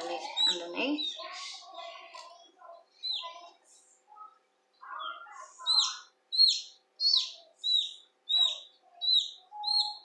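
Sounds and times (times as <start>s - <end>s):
chick peeping shrilly: 0.2s - 1.8s, 3.0s - 3.4s, 4.9s - 10.0s.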